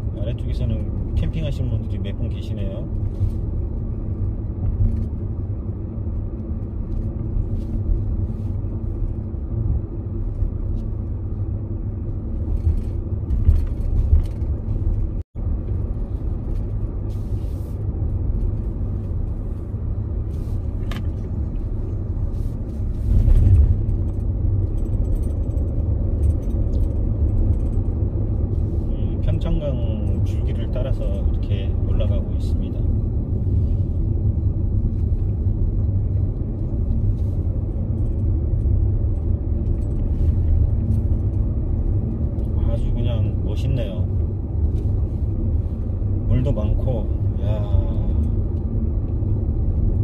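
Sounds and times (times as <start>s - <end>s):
car engine and tyre rumble: 0.0s - 50.0s.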